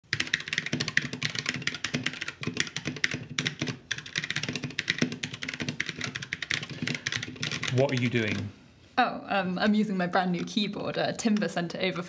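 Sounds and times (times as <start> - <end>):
mechanical keyboard typing: 0.0 - 8.5.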